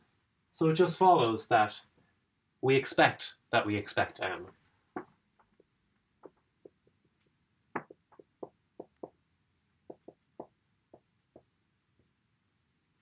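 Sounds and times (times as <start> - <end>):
marker writing on whiteboard: 5.0 - 13.0.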